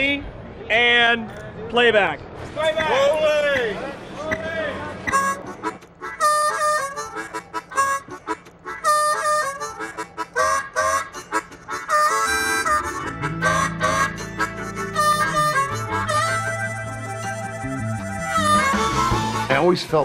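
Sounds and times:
harmonica chords: 0:05.1 - 0:20.0
low bass line: 0:12.8 - 0:19.5.

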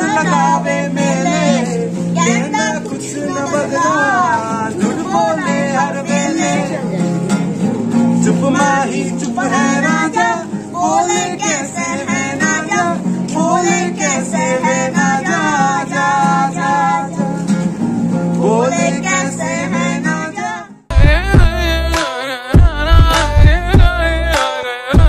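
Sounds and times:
acoustic guitar: 0:00.0 - 0:25.0
person singing: 0:18.4 - 0:25.0.

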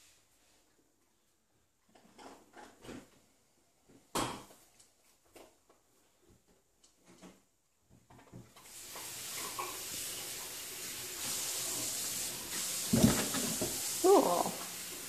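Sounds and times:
steady hiss: 0:08.6 - 0:15.0.

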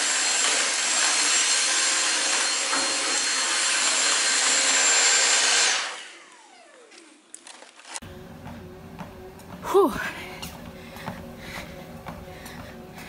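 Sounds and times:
vacuum cleaner whining motor: 0:00.0 - 0:07.4.

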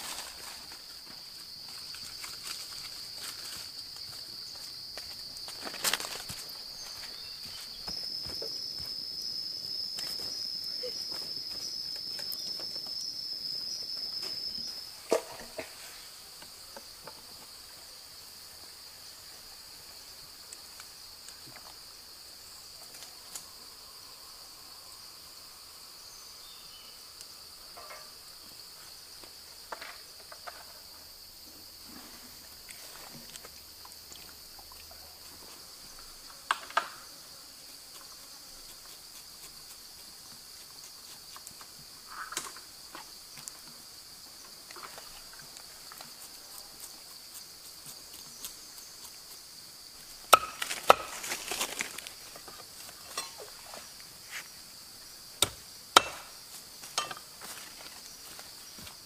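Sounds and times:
high-pitched insect drone: 0:00.1 - 0:15.4.

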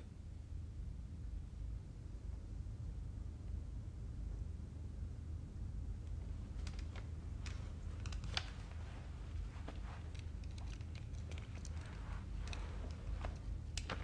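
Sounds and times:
steady low hum: 0:00.0 - 0:14.0
small clicks: 0:06.0 - 0:14.0
clothing and eyeglasses rustling: 0:06.2 - 0:14.0.

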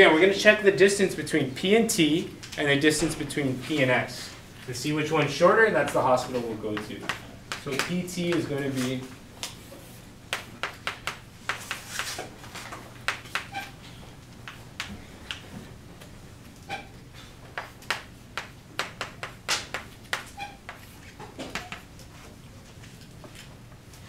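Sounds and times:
chalk tapping and scraping on blackboard: 0:05.8 - 0:09.0, 0:09.6 - 0:12.3, 0:13.0 - 0:13.8, 0:17.6 - 0:22.3
chalk squeaking: 0:13.3 - 0:13.8, 0:20.1 - 0:21.8.

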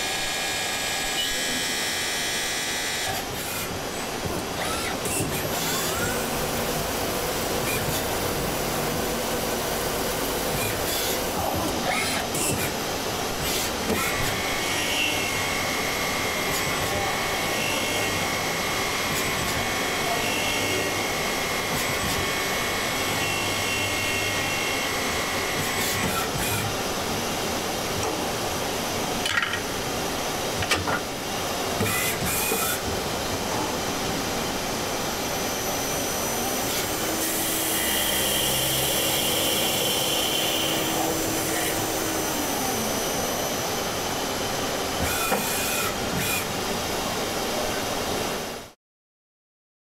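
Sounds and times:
thin machine whine: 0:31.8 - 0:46.5
coolant spray and cutting hiss: 0:36.6 - 0:44.1.

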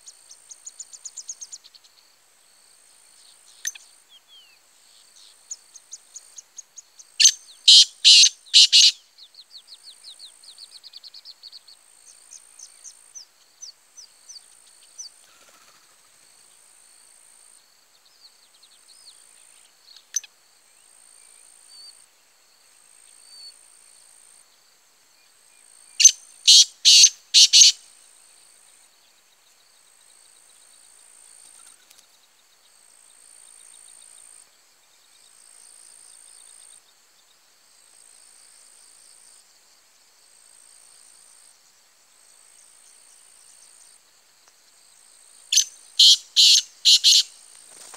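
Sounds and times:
insects buzzing: 0:00.0 - 0:47.9
small birds chirping: 0:03.1 - 0:15.7, 0:26.0 - 0:27.8, 0:45.5 - 0:47.9
francolin calling: 0:06.4 - 0:09.1, 0:25.9 - 0:27.9, 0:45.5 - 0:47.9.

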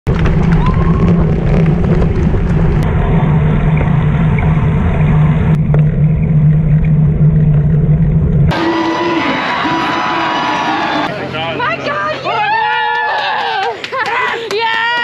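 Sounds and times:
bicycle road rumble: 0:00.0 - 0:11.5
wind buffeting microphone: 0:00.1 - 0:05.6
steady low hum: 0:00.1 - 0:12.0.

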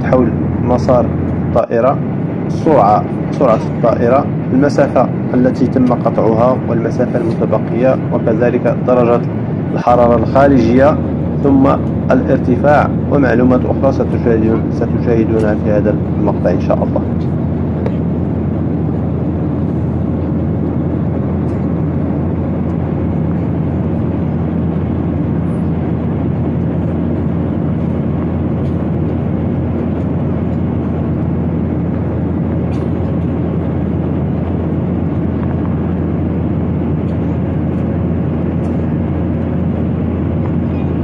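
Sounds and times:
airliner cabin engine rush: 0:00.0 - 0:41.0
low hum: 0:00.0 - 0:41.0.

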